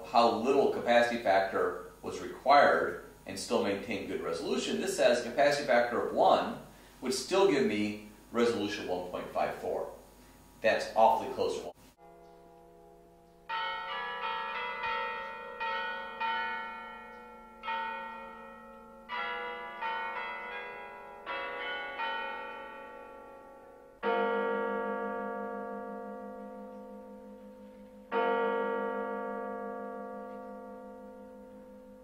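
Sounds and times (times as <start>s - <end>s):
church bells ringing: 0.0s - 6.6s, 10.9s - 32.0s.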